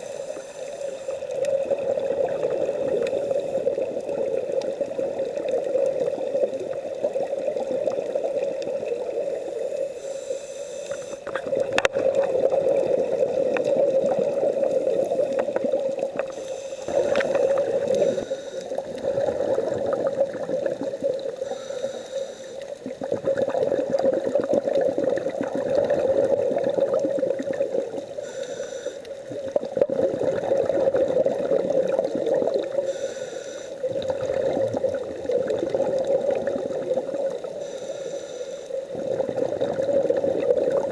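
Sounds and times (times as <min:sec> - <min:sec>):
inhalation hisses: 0:00.0 - 0:01.3, 0:09.4 - 0:11.4, 0:16.2 - 0:18.9, 0:21.4 - 0:22.9, 0:28.1 - 0:29.2, 0:32.7 - 0:34.0, 0:37.4 - 0:39.1
regulator exhalation bubbles: 0:11.2 - 0:21.8, 0:22.8 - 0:28.2, 0:29.3 - 0:33.1, 0:33.8 - 0:37.7, 0:38.9 - 0:40.9
steady hum: 0:16.2 - 0:19.6.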